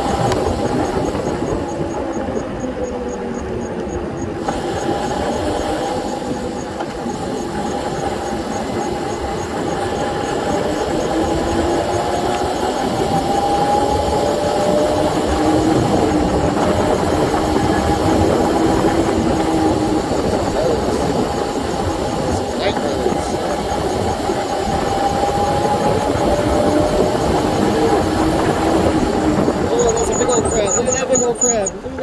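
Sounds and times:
electric bike motor whining: 0.0s - 32.0s
wind noise on microphone: 0.0s - 32.0s.

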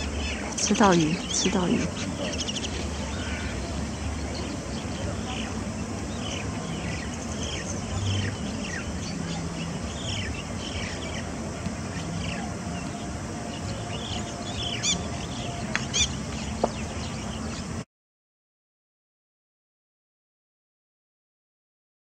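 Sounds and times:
songbirds chirping: 0.0s - 17.8s
steady background noise: 0.0s - 17.8s.

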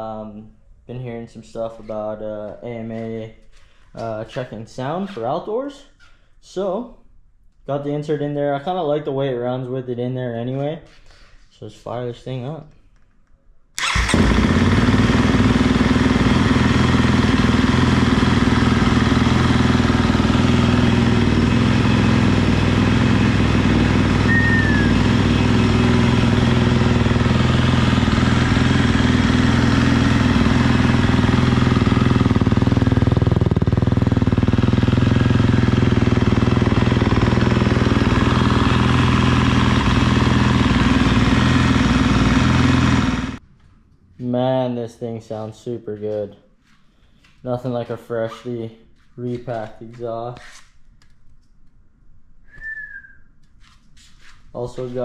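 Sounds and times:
motorcycle engine starting and idling: 13.8s - 43.4s.

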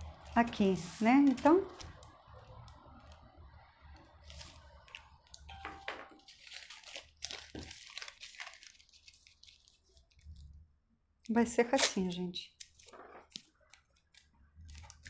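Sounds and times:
paper rustling and crinkling: 4.2s - 10.5s, 11.8s - 15.0s.

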